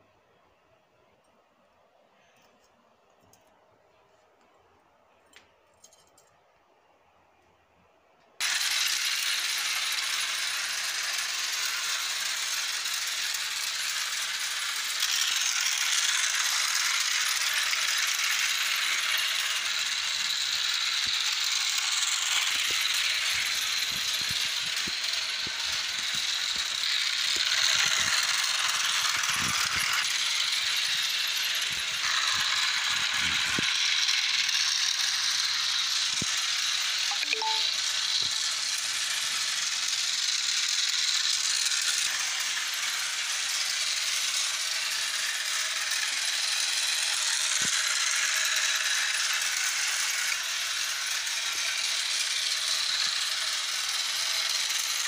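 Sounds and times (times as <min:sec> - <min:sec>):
toy train whirring and rattling: 0:00.0 - 0:55.0.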